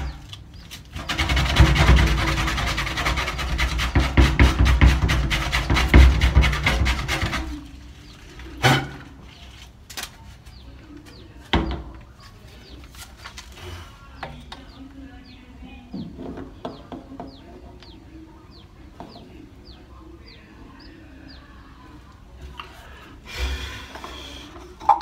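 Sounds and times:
bird chirping: 10.4s - 12.9s, 14.3s - 22.0s.

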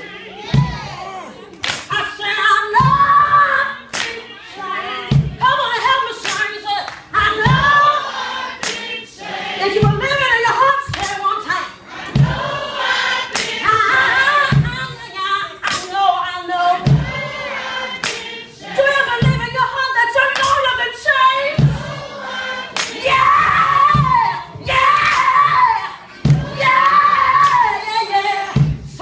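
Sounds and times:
other voices singing: 0.0s - 29.0s
thuds on the beat: 0.5s - 0.9s, 5.1s - 5.5s, 7.2s - 7.8s, 9.8s - 10.2s, 12.1s - 12.6s, 14.5s - 14.9s, 16.9s - 17.3s, 19.2s - 19.6s, 21.6s - 22.0s, 23.9s - 25.3s, 26.2s - 26.6s, 28.6s - 29.0s
hand claps: 1.6s - 2.0s, 3.9s - 4.2s, 6.2s - 7.1s, 8.6s - 8.9s, 13.3s - 13.6s, 18.0s - 18.3s, 20.3s - 20.6s
woman singing: 1.9s - 8.0s, 9.6s - 11.7s, 13.6s - 17.0s, 18.6s - 21.6s, 23.0s - 29.0s.

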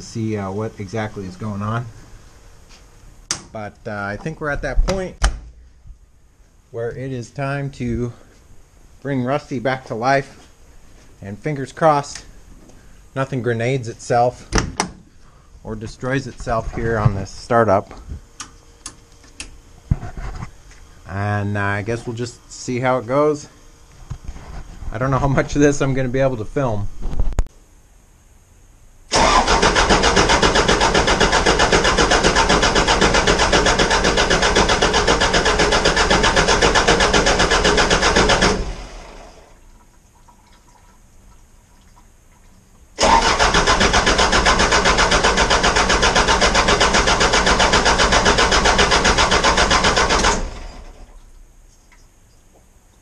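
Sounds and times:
diesel engine cranking: 29.1s - 39.5s, 43.0s - 51.1s.

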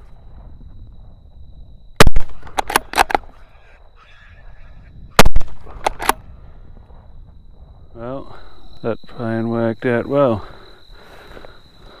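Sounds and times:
rifle shot: 2.0s - 3.3s, 5.2s - 6.3s
sharp clicks: 2.0s - 3.3s, 5.2s - 6.2s.

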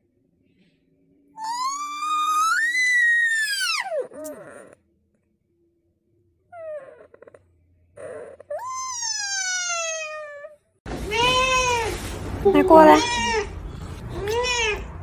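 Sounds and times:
cat meowing: 12.7s - 13.5s, 14.2s - 14.9s.

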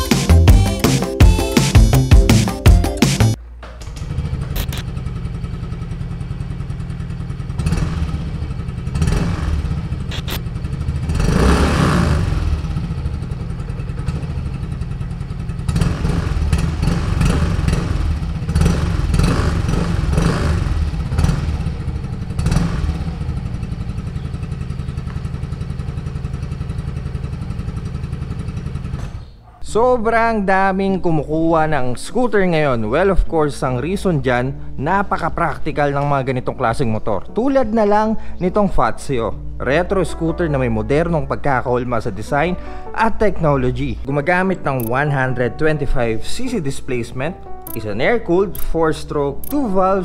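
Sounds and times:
scooter engine idling and revving: 3.8s - 29.5s.

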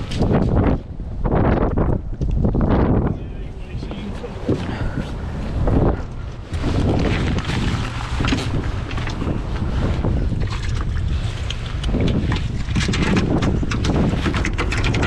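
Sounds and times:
wind buffeting microphone: 0.0s - 15.0s
rain jacket rustling: 4.0s - 10.2s.

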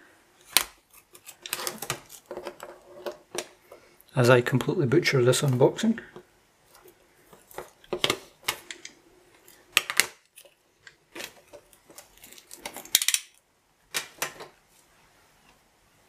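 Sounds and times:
plastic wrap crackling: 0.4s - 3.3s, 9.4s - 13.4s.

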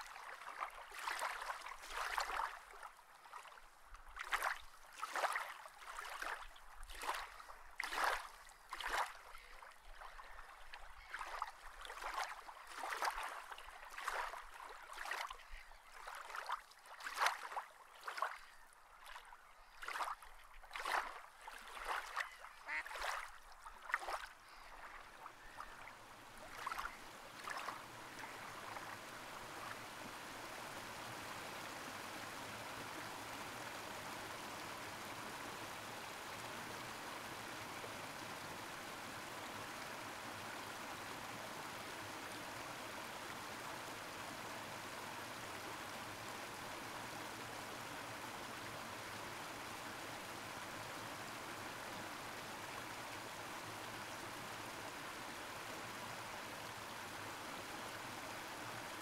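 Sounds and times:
rhythmic water splashing: 0.0s - 33.6s.

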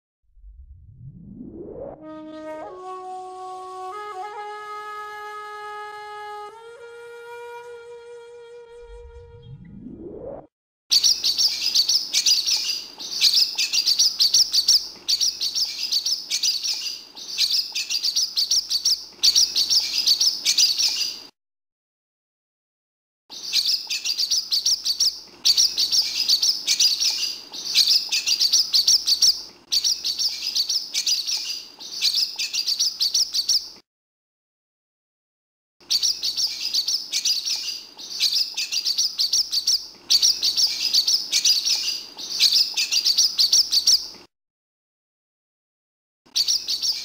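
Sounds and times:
swallow twittering: 10.9s - 21.2s, 23.3s - 33.7s, 35.9s - 44.0s.

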